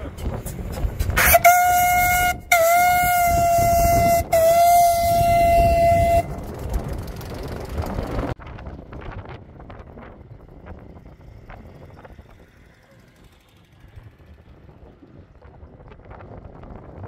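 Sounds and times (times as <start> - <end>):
vehicles rumbling past: 0.0 - 17.0
steam whistle blasts: 1.2 - 6.4.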